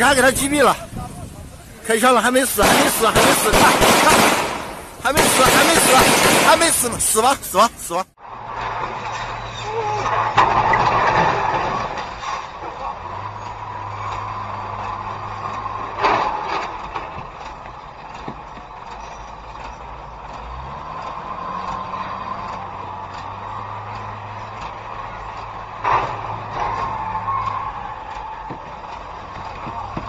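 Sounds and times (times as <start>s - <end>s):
street traffic engine hum: 0.0s - 30.0s
sudden loud bangs: 2.4s - 7.3s.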